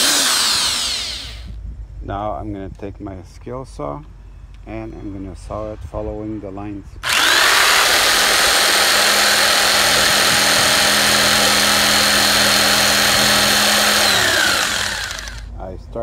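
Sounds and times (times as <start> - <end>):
electric jigsaw cutting plastic: 0.0 - 1.5, 7.0 - 15.5.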